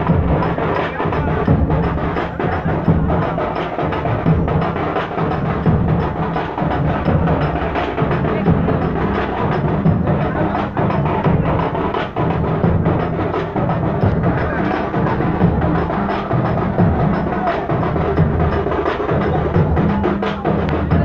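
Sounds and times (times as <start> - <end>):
loud fast drumming: 0.0 - 21.0.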